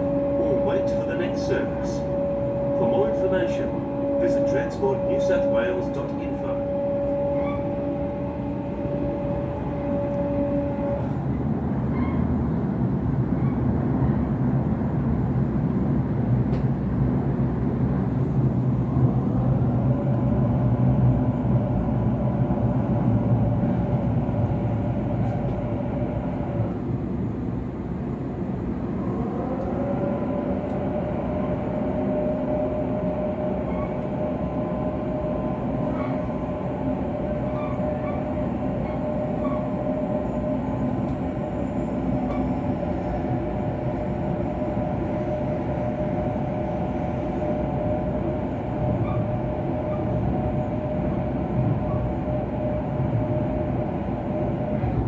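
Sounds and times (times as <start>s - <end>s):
train motor whine: 0.0s - 13.8s, 16.4s - 55.0s
wheels rumbling on rail: 0.0s - 55.0s.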